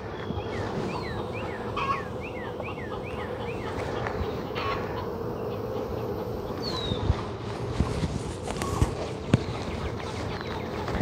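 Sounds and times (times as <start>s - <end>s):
bird chirping: 0.0s - 7.1s
honeybees humming: 0.0s - 11.0s.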